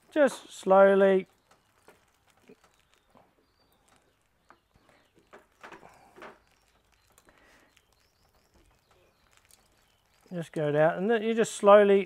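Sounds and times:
faint bird chirps: 1.2s - 10.7s.

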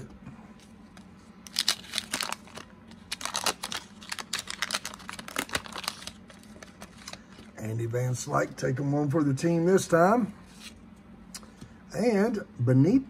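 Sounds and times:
wax paper wrapper crinkling and tearing: 1.0s - 7.6s.

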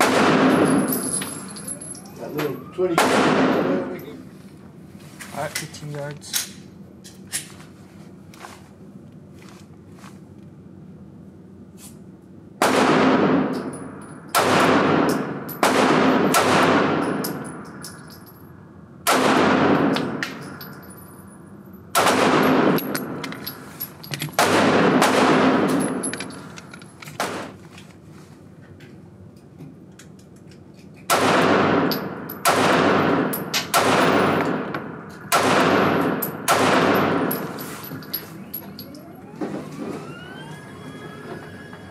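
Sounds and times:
pistol shots echoing: 0.0s - 0.9s, 2.9s - 3.9s, 14.3s - 17.4s, 19.1s - 20.3s, 22.0s - 23.2s, 24.4s - 26.0s, 31.1s - 37.6s.

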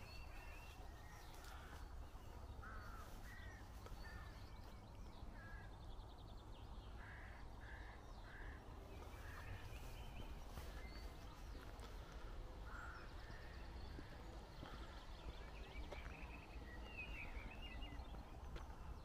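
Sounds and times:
crows cawing: 1.3s - 4.4s, 7.0s - 9.7s, 12.1s - 15.0s.

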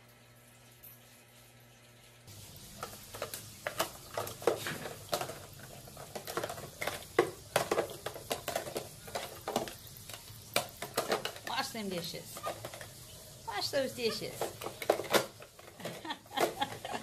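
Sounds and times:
plastic toy dishes clattering: 2.8s - 13.0s, 14.0s - 17.0s.

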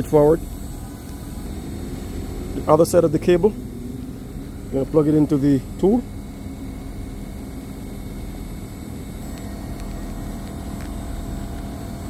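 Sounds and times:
machinery hum: 0.0s - 12.0s.

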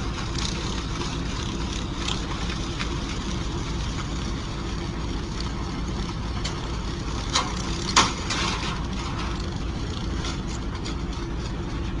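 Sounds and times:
engine rumble inside vehicle: 0.0s - 12.0s
short rattle: 6.3s - 11.6s.

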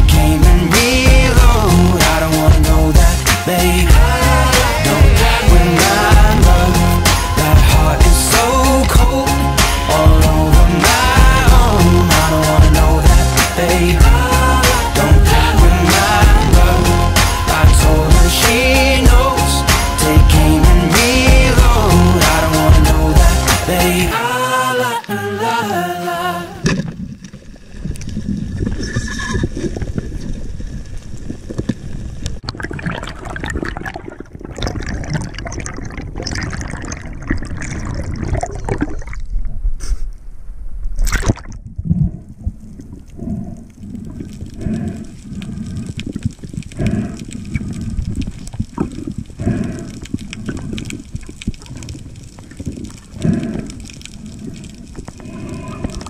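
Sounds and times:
underwater bubbling: 26.4s - 56.0s.

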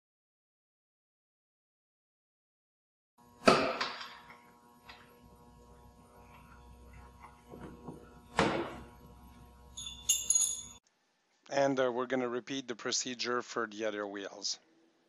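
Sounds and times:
wrench clinking on concrete: 9.8s - 10.8s.

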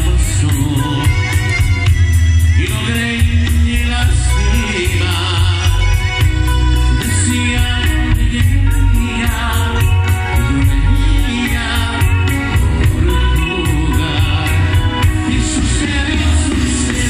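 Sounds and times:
live band playing: 0.0s - 17.0s
man singing: 0.0s - 17.0s.

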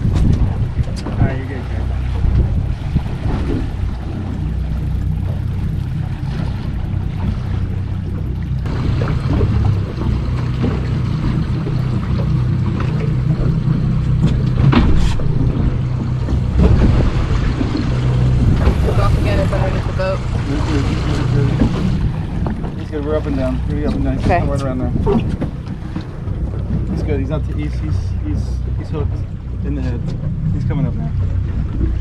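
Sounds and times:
boat engine running: 0.0s - 32.0s
water noise: 0.0s - 32.0s
wind on microphone: 0.0s - 32.0s.

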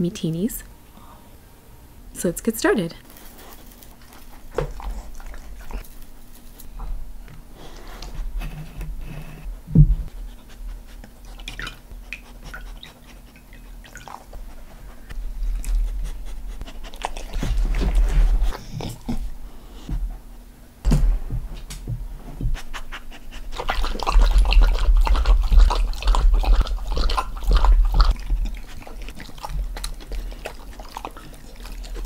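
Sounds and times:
dog panting: 3.4s - 6.3s, 10.1s - 20.4s, 22.4s - 32.0s
dogs licking and lapping: 3.4s - 6.6s, 10.3s - 19.2s, 22.8s - 32.0s
sharp thump: 20.9s - 22.6s.

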